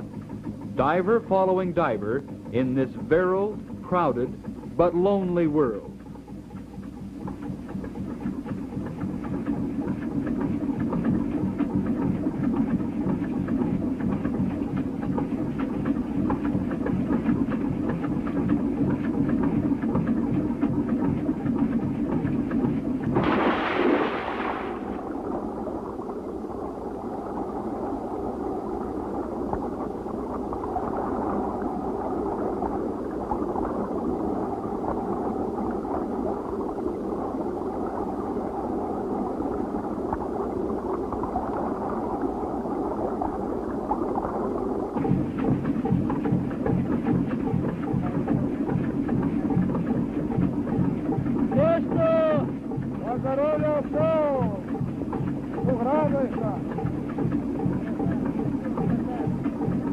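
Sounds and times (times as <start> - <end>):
boat engine running: 0.0 - 59.9
muffled underwater rushing: 0.0 - 59.9
loud splash into water: 23.1 - 25.1.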